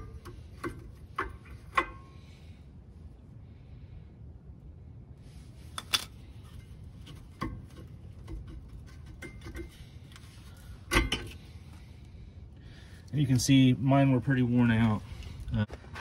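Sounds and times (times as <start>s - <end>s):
brake pads clinking against metal: 0.0s - 2.4s.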